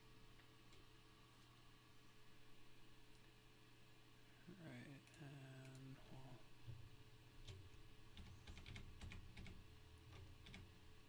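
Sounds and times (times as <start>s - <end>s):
keyboard keys clicking: 8.2s - 9.6s.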